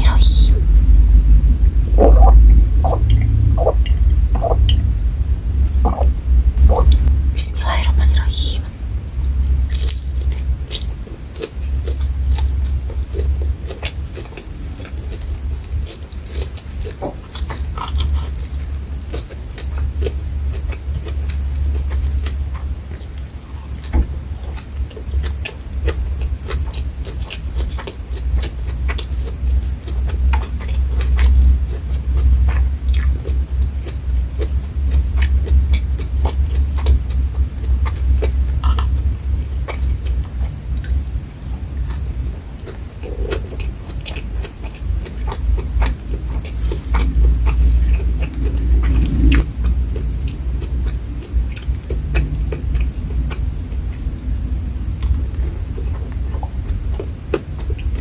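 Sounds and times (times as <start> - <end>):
biting and chewing food: 0.0 - 58.0
wet mouth clicks and smacks: 5.9 - 7.1, 39.7 - 54.3.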